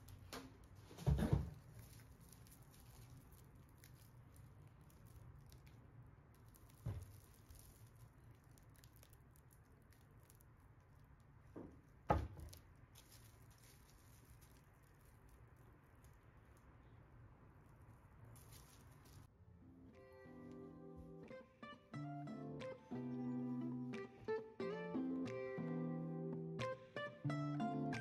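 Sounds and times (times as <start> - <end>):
plastic wrap rustling: 0.0 - 19.3.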